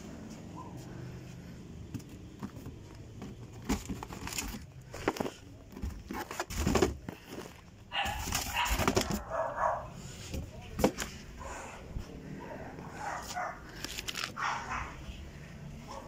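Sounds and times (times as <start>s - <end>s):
boxes knocking when set down: 1.9s - 7.3s
packaging rustling: 2.1s - 9.3s, 13.1s - 14.8s.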